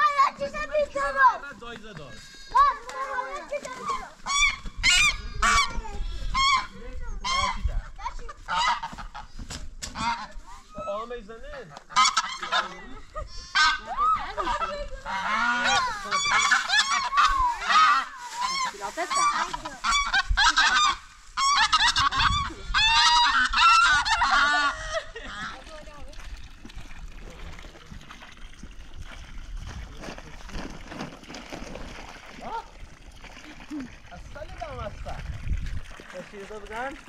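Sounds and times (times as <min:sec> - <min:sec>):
geese honking: 0:04.2 - 0:07.7, 0:08.4 - 0:09.3, 0:11.9 - 0:12.9, 0:13.5 - 0:25.6.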